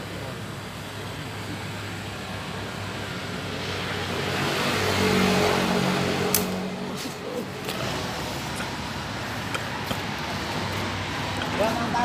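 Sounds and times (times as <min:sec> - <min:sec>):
vehicle passing by: 0:03.1 - 0:12.0
sharp click: 0:06.3 - 0:06.6.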